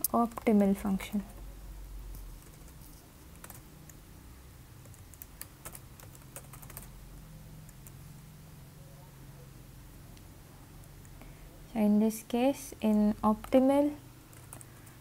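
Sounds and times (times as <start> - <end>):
low steady hum: 0.0 - 15.0
keyboard typing: 2.2 - 4.0, 4.8 - 7.0, 7.6 - 8.0, 14.3 - 15.0.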